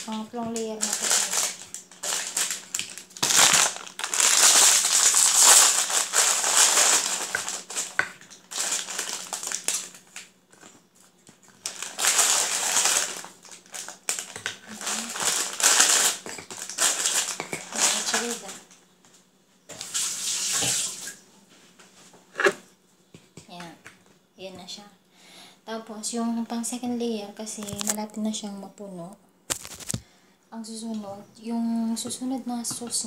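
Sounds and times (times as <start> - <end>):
foil packet crinkling: 0.0 - 18.7, 27.6 - 28.0, 29.5 - 30.1.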